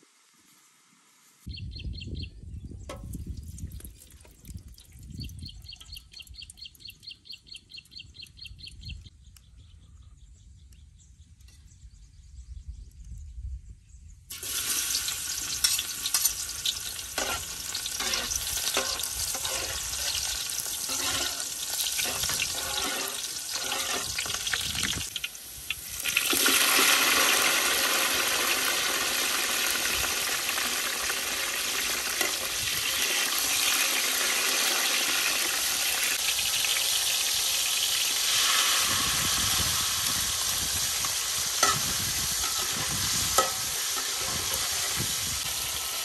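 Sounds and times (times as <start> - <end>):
cleaver scraping wok: 14.3 - 25.1, 38.2 - 46.0
garlic sizzling in hot oil: 14.3 - 46.0.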